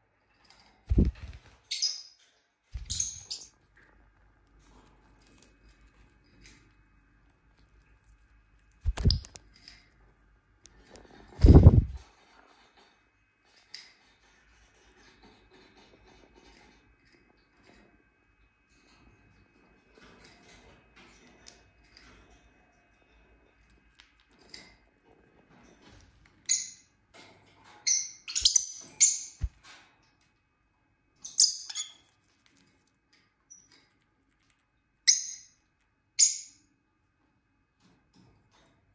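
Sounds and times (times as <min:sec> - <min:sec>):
bird wings flapping: 0:00.9 - 0:01.6, 0:08.8 - 0:09.4, 0:11.3 - 0:12.0
lovebirds chirping and squawking: 0:00.9 - 0:02.2, 0:02.8 - 0:03.6, 0:08.9 - 0:09.4, 0:26.5 - 0:26.9, 0:27.8 - 0:29.5, 0:31.2 - 0:32.1, 0:35.1 - 0:35.6, 0:36.2 - 0:36.6
small beak clicks: 0:08.8 - 0:09.5.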